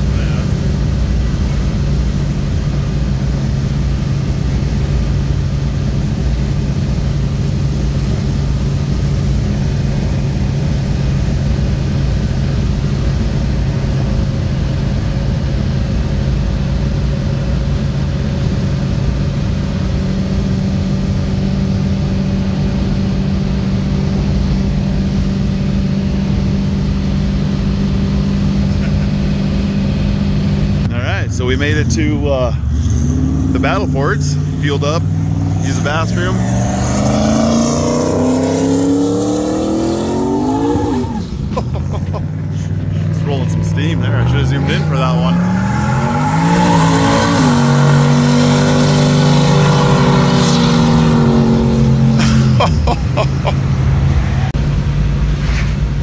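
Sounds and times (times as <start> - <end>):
car engine cruising: 0.0 - 56.0
tyre and road noise: 19.0 - 56.0.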